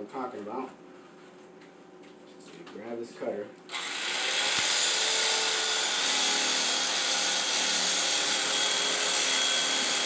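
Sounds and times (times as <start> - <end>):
electric carving knife sawing: 3.7 - 10.0.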